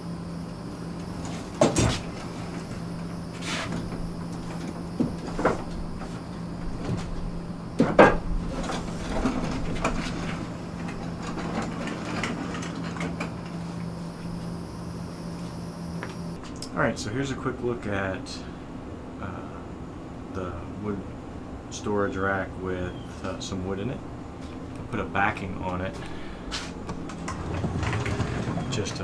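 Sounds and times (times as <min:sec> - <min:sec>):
steady low hum: 0:00.0 - 0:29.0
wheels rolling and scraping: 0:00.8 - 0:16.4, 0:26.0 - 0:29.0.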